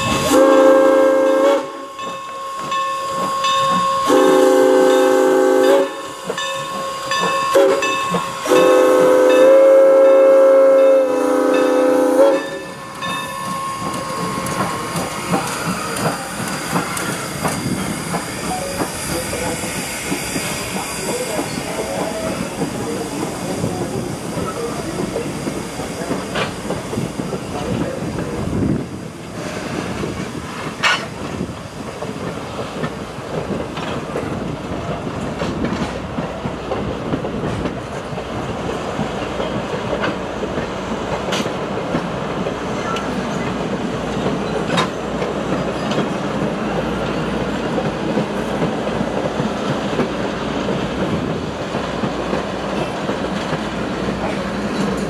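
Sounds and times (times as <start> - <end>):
steam locomotive whistle: 0.0 - 6.2, 6.8 - 15.0
train wheels clicking over rail joints: 5.6 - 9.5, 12.5 - 55.0.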